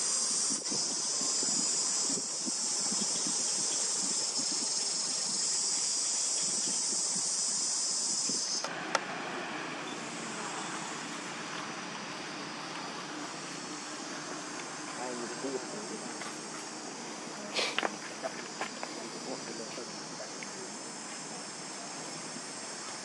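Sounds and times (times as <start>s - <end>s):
insects droning: 0.0s - 23.0s
outdoor hiss: 0.0s - 23.0s.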